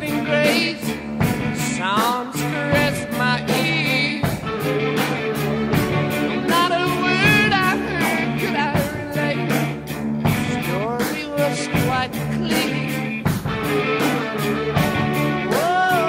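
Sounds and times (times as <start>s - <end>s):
drum beat: 0.0s - 16.0s
person singing: 0.0s - 16.0s
rock song: 0.0s - 16.0s.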